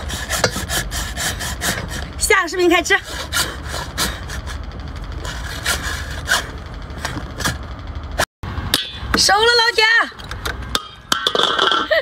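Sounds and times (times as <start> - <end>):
hacksaw cutting shell: 0.0 - 2.1
low steady rumble: 0.0 - 12.0.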